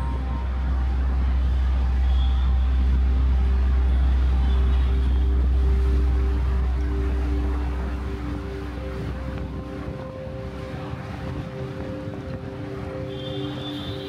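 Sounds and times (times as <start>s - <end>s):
car engine and road noise: 0.0s - 14.0s
faint steady tones: 0.0s - 14.0s.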